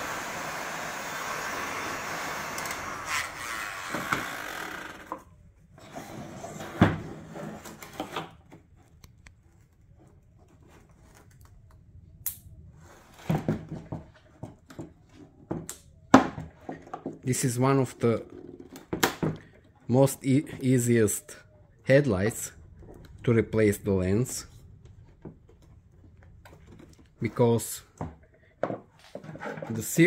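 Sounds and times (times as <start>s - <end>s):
heat gun blowing: 0.0s - 5.1s.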